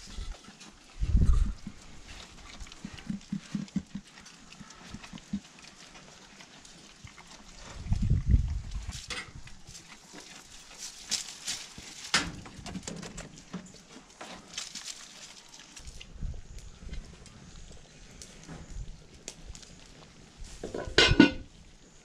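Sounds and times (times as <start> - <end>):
goat chewing: 0.0 - 16.1
straw and peels rustling: 0.0 - 20.8.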